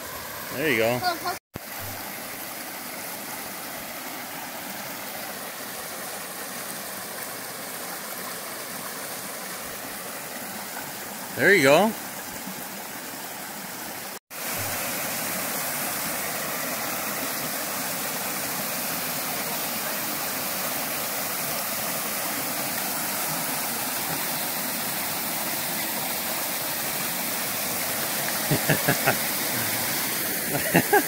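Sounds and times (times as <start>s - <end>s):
brook splashing over rocks: 12.0s - 30.5s.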